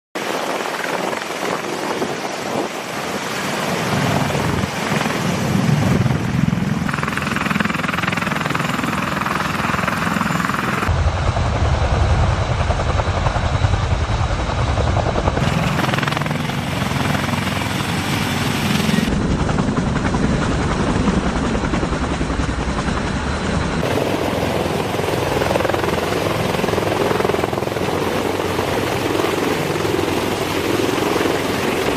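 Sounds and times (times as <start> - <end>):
helicopter engines and rotor: 0.2 - 31.9.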